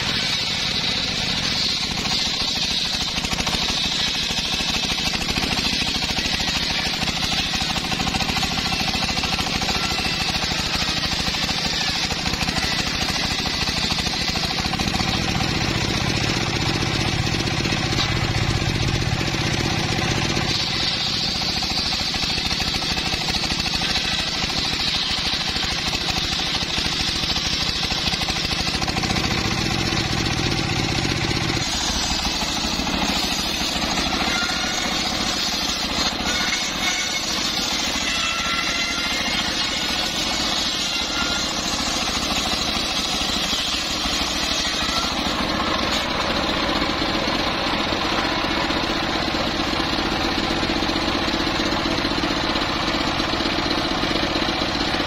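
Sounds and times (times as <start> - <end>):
circular saw blade whining: 0.0 - 55.0
engine running under load: 0.0 - 55.0.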